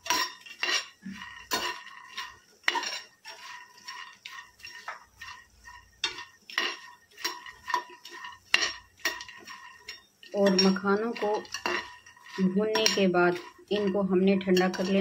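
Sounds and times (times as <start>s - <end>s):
utensil scraping metal pan: 0.0s - 15.0s.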